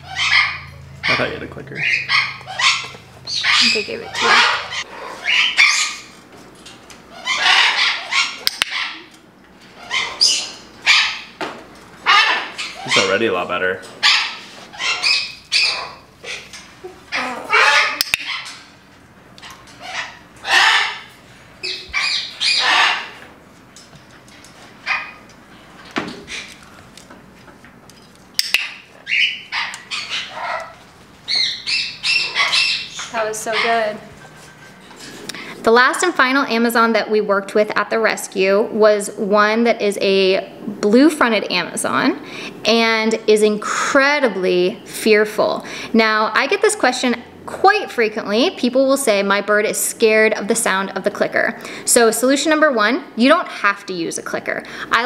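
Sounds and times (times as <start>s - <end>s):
parrot harsh calls: 0.0s - 6.2s, 7.1s - 9.1s, 9.7s - 11.4s, 12.0s - 13.4s, 14.0s - 18.8s, 19.4s - 23.3s, 28.4s - 35.6s.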